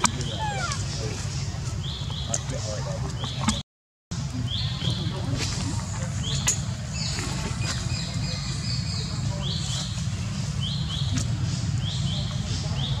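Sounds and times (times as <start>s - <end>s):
high-pitched animal calls: 0.0s - 1.1s
steady low rumble: 4.2s - 13.0s.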